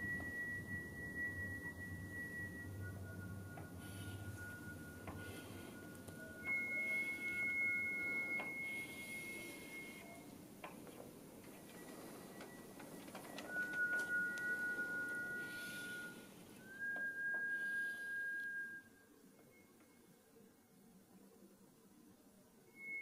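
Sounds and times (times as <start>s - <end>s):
high pure sustained tones: 0.0s - 10.4s, 11.8s - 20.2s
soft hiss: 0.0s - 23.0s
faint clicks: 10.0s - 15.3s.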